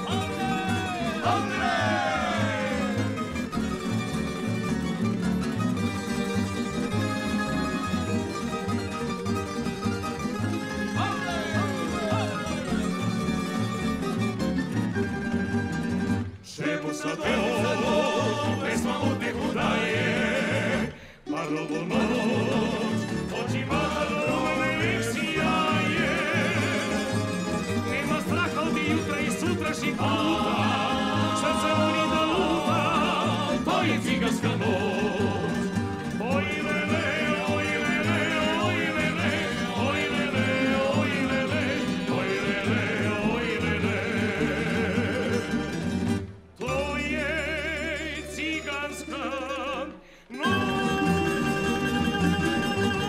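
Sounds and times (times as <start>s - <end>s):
string ensemble playing lively music: 0.0s - 53.0s.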